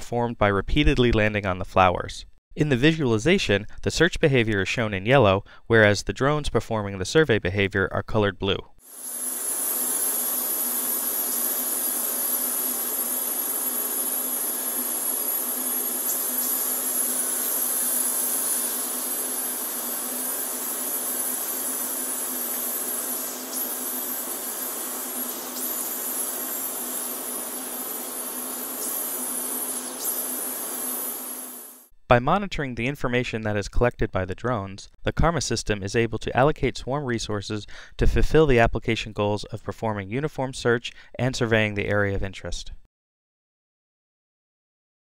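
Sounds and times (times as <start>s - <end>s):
rc helicopters whirring: 8.8s - 31.9s.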